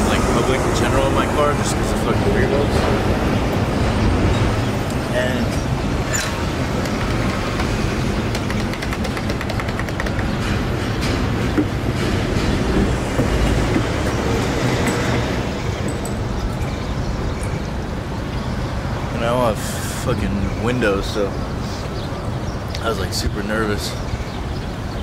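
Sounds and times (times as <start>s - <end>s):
low rumbling vehicle noise: 0.0s - 25.0s
sharp clicks: 6.1s - 10.6s.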